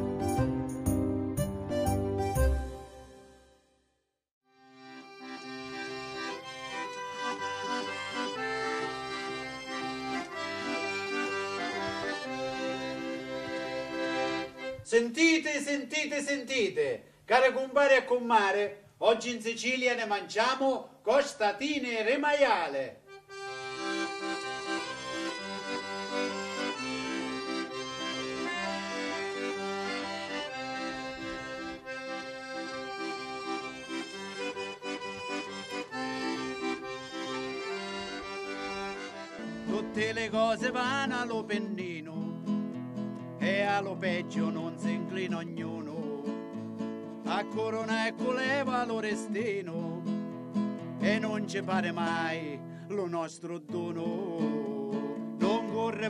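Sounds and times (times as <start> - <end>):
piano accordion folk tune: 0.0 - 3.6, 4.5 - 14.9, 23.1 - 52.8.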